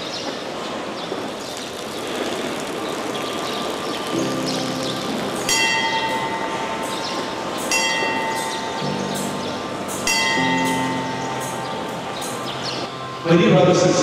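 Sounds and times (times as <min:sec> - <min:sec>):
rain hissing: 0:00.2 - 0:08.2
bell ringing: 0:04.1 - 0:13.6.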